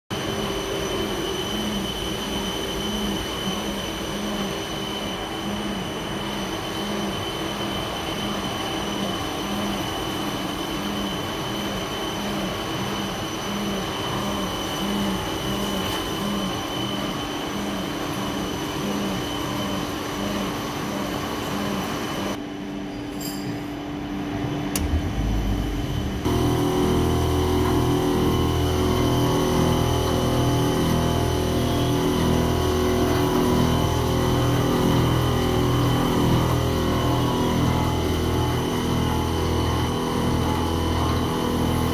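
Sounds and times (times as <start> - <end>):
multi-tone machine hum: 0.1 - 41.9.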